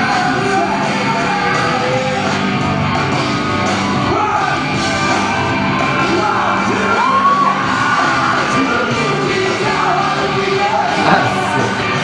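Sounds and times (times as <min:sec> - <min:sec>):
live rock band: 0:00.0 - 0:12.0
shouting over music: 0:00.0 - 0:12.0
man singing lead vocals: 0:08.4 - 0:12.0.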